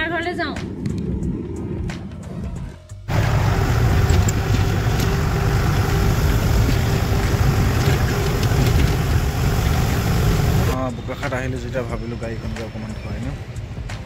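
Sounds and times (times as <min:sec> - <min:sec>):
wind buffeting microphone: 0:00.0 - 0:10.8
vehicle road noise: 0:03.1 - 0:10.8.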